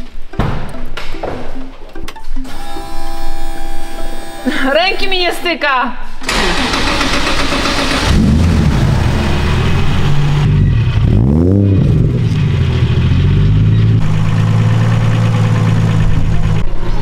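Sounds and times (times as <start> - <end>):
engine rev blip: 6.2 - 16.7
car engine running: 6.2 - 17.0.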